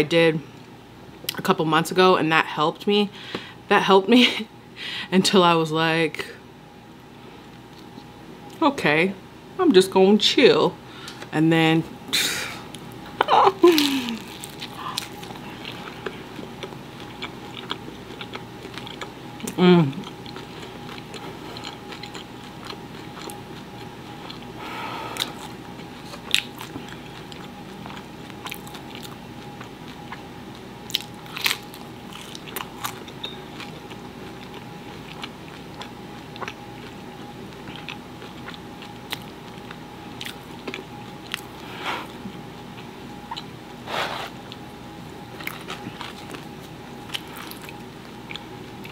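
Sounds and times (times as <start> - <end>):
person chewing crunchy crust: 12.7 - 44.7, 45.3 - 48.9.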